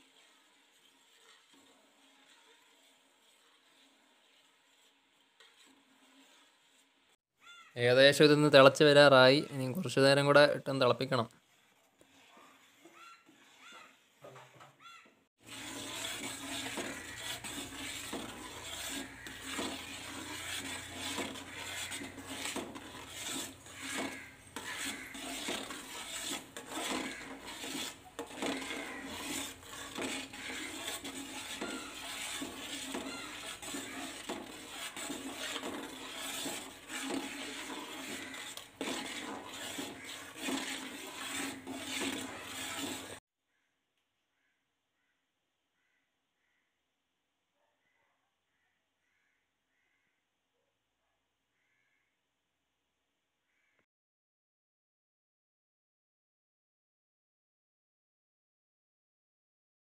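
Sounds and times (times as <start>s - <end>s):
metal spoon scraping metal pot: 0.0s - 7.1s, 7.9s - 14.8s, 15.4s - 43.2s
syrup bubbling and hissing: 15.4s - 43.2s.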